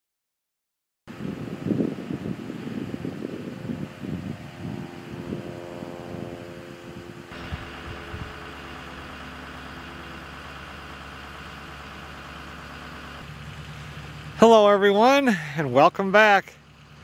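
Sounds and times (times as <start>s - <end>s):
wind rumble on microphone: 1.1s - 8.6s
pickup truck engine idling: 1.2s - 17.0s.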